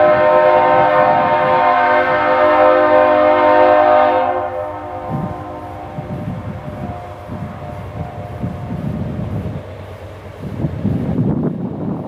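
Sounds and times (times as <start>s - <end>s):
locomotive air horn blast: 0.0s - 8.9s
train rumble: 0.0s - 12.0s.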